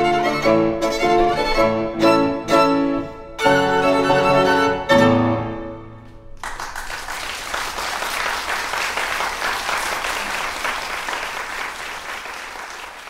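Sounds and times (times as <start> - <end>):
violin and piano: 0.0 - 6.0
audience applause: 6.4 - 13.0.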